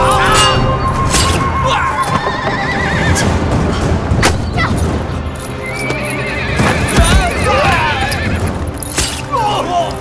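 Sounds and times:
horses whinnying: 1.7s - 3.4s, 5.6s - 9.2s
hoofbeats: 1.7s - 3.9s, 4.6s - 9.2s.

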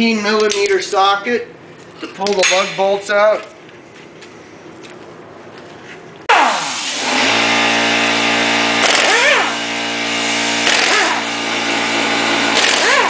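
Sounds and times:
pneumatic impact wrench whirring: 6.3s - 13.0s.

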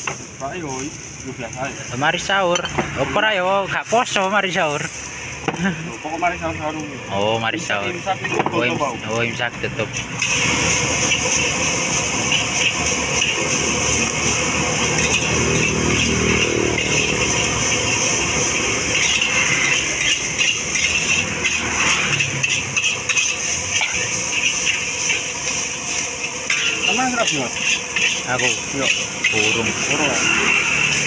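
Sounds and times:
gas burner rushing: 0.0s - 31.0s
rice sizzling: 0.0s - 31.0s
metal spatula scraping a wok: 10.2s - 31.0s.

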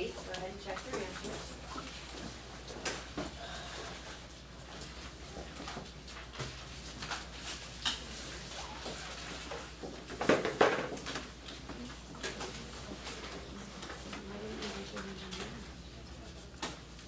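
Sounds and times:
small clicks and rustles: 10.9s - 17.0s.

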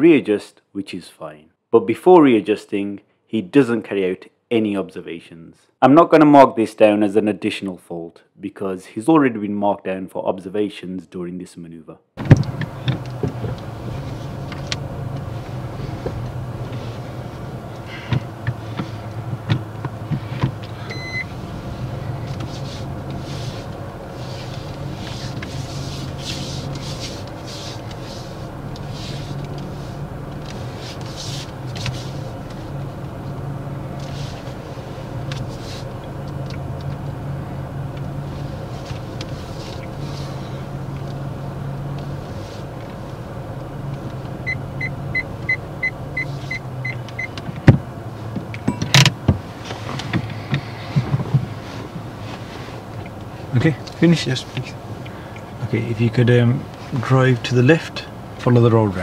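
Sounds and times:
car engine idling: 12.2s - 59.0s
short beep: 20.9s - 21.3s.

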